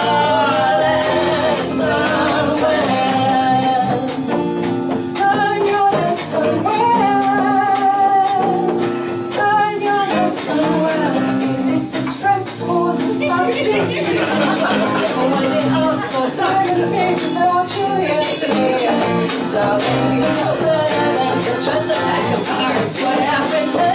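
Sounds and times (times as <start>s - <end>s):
women singing long notes: 0.0s - 4.2s, 9.4s - 23.9s
drums and percussion: 0.0s - 23.9s
strummed acoustic guitar: 0.0s - 23.9s.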